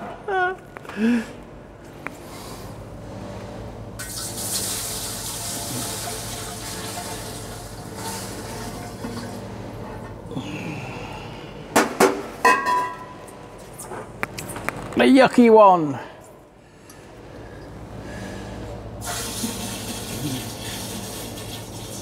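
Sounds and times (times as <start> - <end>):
liquid pouring: 4.0 - 9.4, 19.0 - 22.0.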